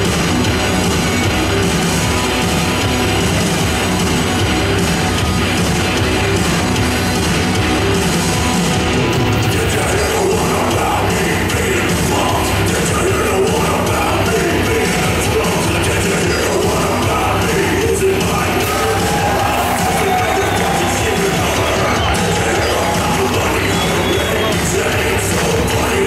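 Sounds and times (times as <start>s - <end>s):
heavy metal music in a hall: 0.0s - 26.0s.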